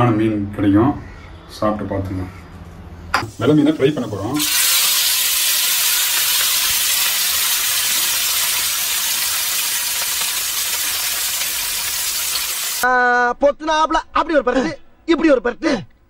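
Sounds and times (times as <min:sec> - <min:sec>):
fish sizzling in hot oil: 0:03.2 - 0:12.8.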